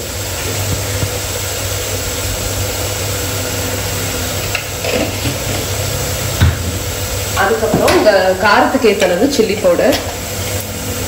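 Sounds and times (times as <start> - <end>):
masala sizzling in a pan: 0.0 - 11.0.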